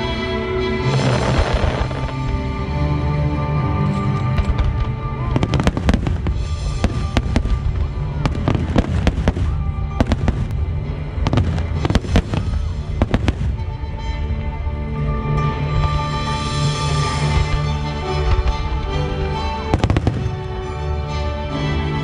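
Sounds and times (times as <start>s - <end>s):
music with sustained tones: 0.0s - 22.0s
fireworks bursting: 0.9s - 2.6s, 4.5s - 13.8s, 19.7s - 20.8s.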